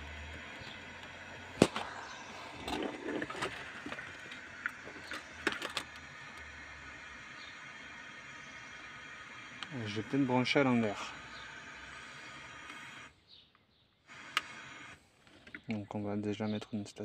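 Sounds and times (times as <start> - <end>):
quick clicks: 14.1 - 15.8.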